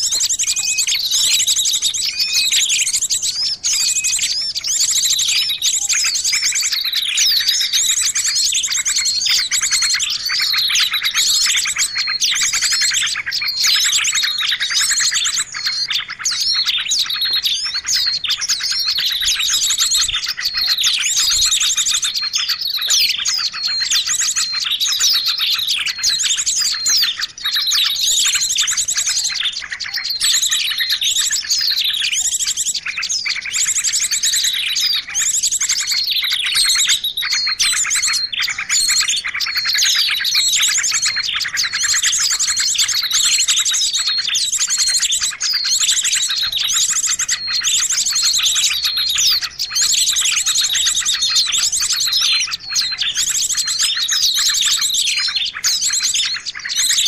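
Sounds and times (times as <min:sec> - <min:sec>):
songbirds chirping and trilling: 0:00.0 - 0:57.0.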